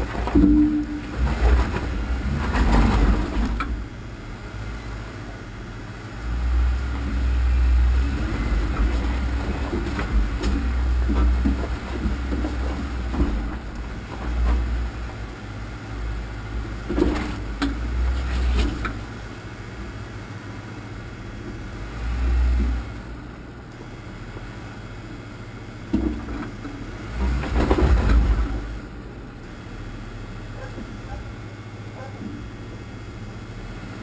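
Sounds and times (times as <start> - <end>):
off-road vehicle engine running: 0.0 - 20.1
wheels knocking on rocks: 8.1 - 15.0.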